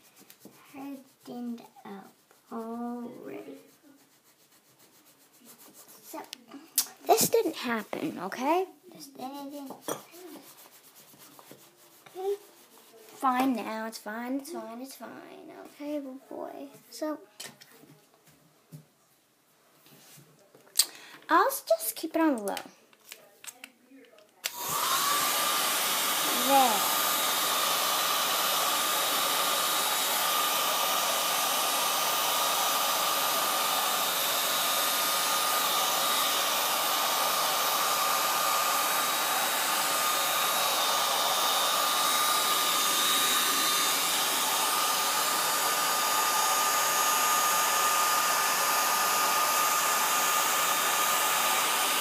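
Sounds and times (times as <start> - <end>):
hair dryer switch: 24.4 - 52.0
hair dryer blowing: 24.5 - 52.0.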